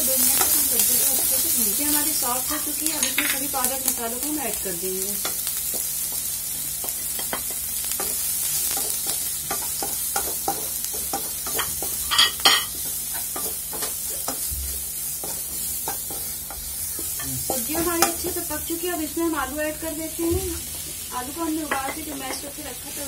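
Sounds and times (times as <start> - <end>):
vegetables sizzling in oil: 0.0 - 23.0
wooden spatula tapping and scraping: 5.2 - 18.3.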